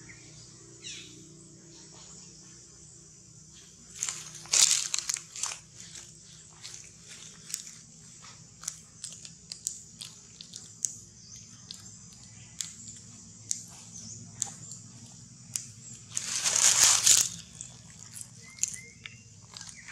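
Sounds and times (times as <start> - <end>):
sharp clicks and crackles: 8.6 - 13.8
rustling noise: 16.0 - 17.6.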